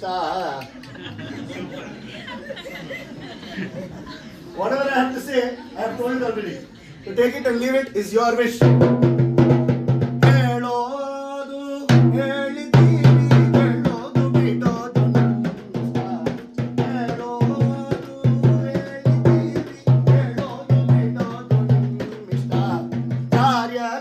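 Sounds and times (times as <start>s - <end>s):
frame drum beaten in fast rhythm: 8.6s - 10.6s, 11.9s - 23.8s
man singing: 10.2s - 24.0s.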